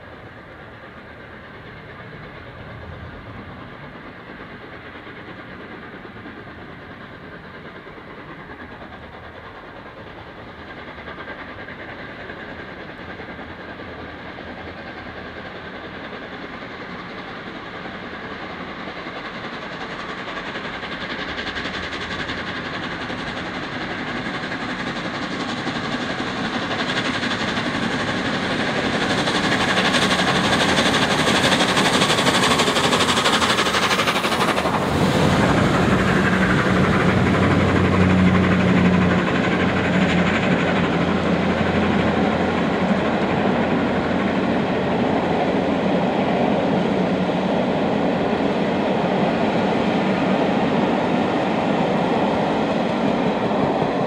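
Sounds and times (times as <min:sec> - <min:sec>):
steam locomotive passing: 0:00.0 - 0:54.0
train coaches rolling by: 0:00.0 - 0:54.0.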